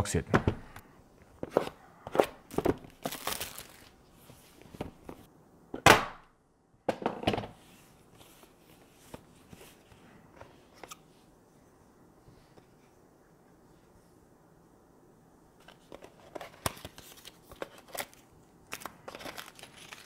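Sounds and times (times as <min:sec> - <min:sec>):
packaging tearing and crinkling: 0:02.5 - 0:04.0, 0:16.8 - 0:20.0.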